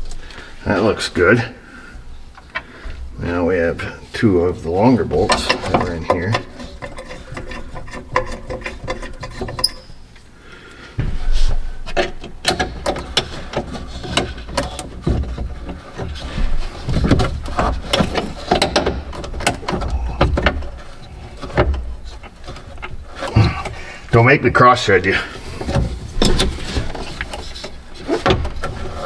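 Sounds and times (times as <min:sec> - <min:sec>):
rustling: 0:24.9 - 0:29.0.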